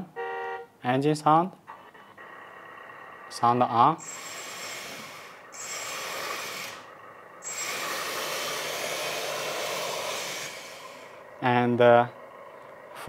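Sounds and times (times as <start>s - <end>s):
simulated engine sound from speaker: 0.0s - 13.0s.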